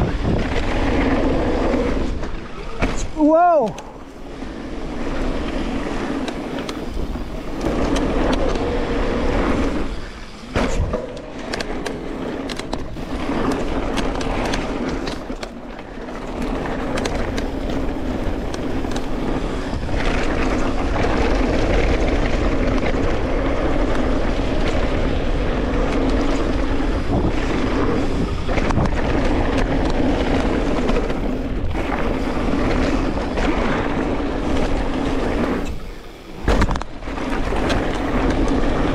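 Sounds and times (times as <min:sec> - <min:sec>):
tyre and wind rush: 0:00.0 - 0:38.9
bike knocks and rattles: 0:05.0 - 0:38.9.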